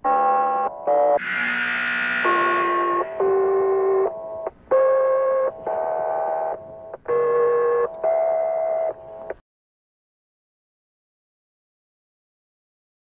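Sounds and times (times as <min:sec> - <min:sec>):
electronic held chords: 0:00.7 - 0:07.0.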